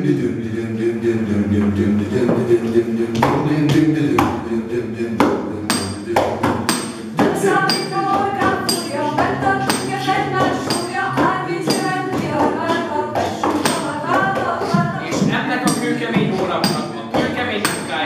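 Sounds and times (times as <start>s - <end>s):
group singing: 0.0s - 18.0s
sharp percussive taps: 5.2s - 18.0s.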